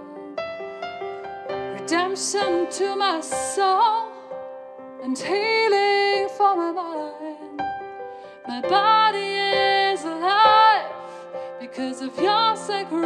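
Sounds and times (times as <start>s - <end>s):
woman singing: 0.0s - 0.4s, 1.7s - 4.2s, 5.0s - 7.6s, 8.5s - 13.0s.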